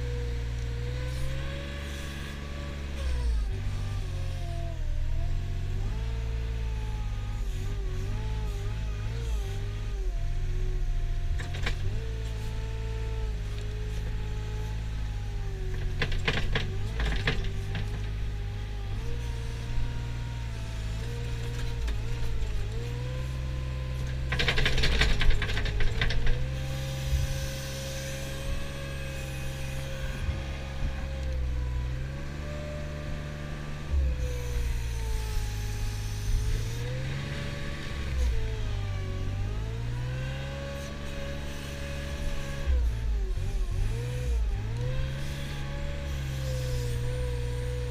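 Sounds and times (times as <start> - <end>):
diesel loader engine revving: 0.0 - 47.9
rattling clatter: 15.8 - 18.2, 24.2 - 26.5.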